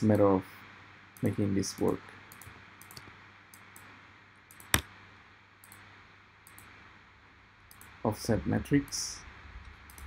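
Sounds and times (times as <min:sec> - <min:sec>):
room hiss: 0:00.0 - 0:10.0
computer mouse clicks: 0:01.2 - 0:03.9, 0:04.5 - 0:04.9, 0:05.6 - 0:06.8, 0:07.7 - 0:08.0, 0:09.6 - 0:10.0.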